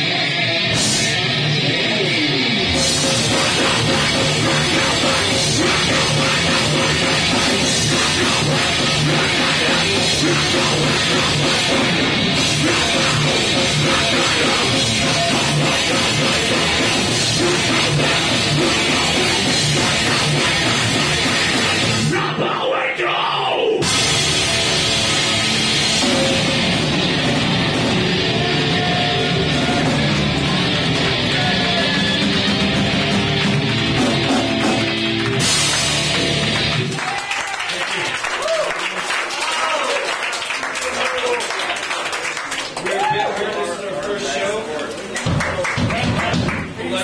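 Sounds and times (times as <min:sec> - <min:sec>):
drum kit: 0:00.0 - 0:22.4, 0:23.8 - 0:37.3, 0:45.2 - 0:46.8
distorted electric guitar: 0:00.0 - 0:23.0, 0:23.7 - 0:37.0
bass guitar: 0:00.0 - 0:37.2.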